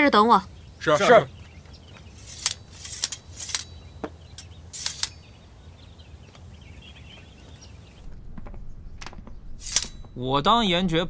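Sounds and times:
faint birdsong: 0.0s - 10.4s
swords and armour rattling: 2.2s - 3.8s, 4.4s - 5.2s, 9.6s - 10.1s.

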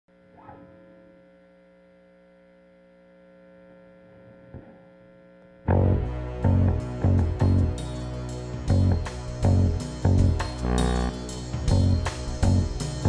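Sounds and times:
faint electrical mains hum: 0.1s - 5.8s.

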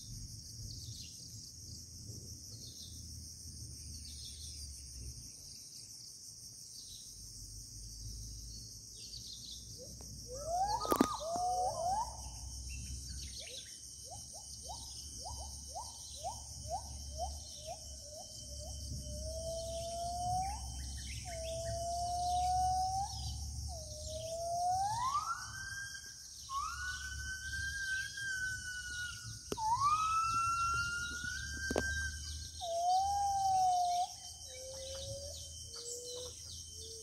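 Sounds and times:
high insect drone: 0.0s - 37.0s
gibbons whistled hoots: 10.2s - 12.6s, 13.2s - 37.0s.

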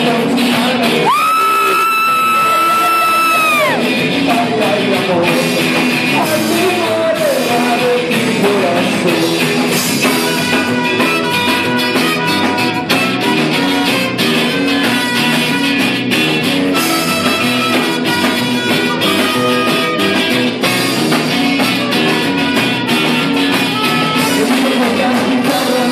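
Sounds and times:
rock band playing: 0.0s - 25.9s.

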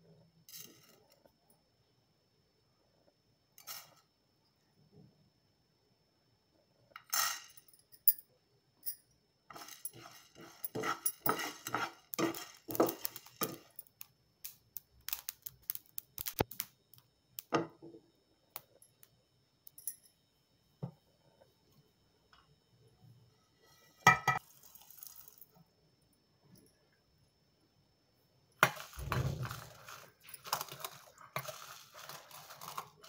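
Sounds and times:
spices clicking and clinking: 7.0s - 17.6s, 18.5s - 20.2s, 28.6s - 33.0s
spoon stirring and scraping pan: 9.5s - 13.8s, 28.6s - 33.0s
peppercorns rattling into pan: 9.5s - 17.5s, 24.4s - 25.5s, 28.6s - 33.0s.

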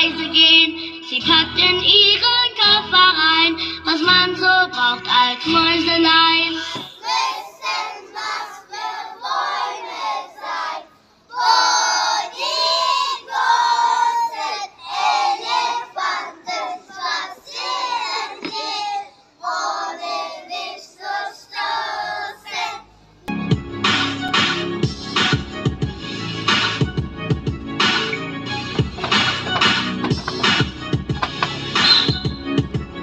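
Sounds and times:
children singing in chorus: 6.6s - 22.8s.

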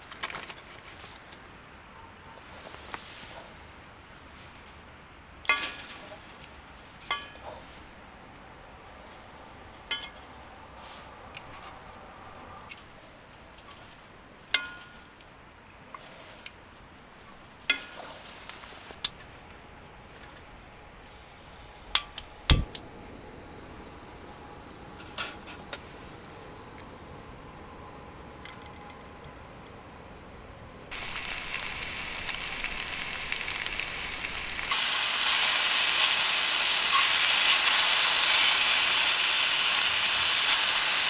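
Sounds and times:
metal cookware clinking: 5.5s - 6.1s, 14.5s - 15.0s
camping stove clicks and knock: 22.0s - 22.8s.

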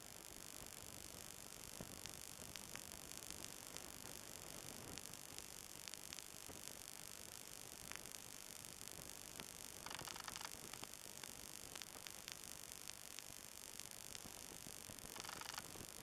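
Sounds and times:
faint steady hiss: 0.0s - 16.0s
faint ticks: 9.3s - 13.4s, 14.1s - 16.0s.

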